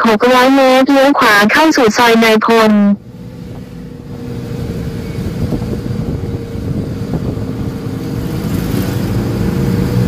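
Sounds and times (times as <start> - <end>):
three-wheeler engine drone: 2.0 - 10.0.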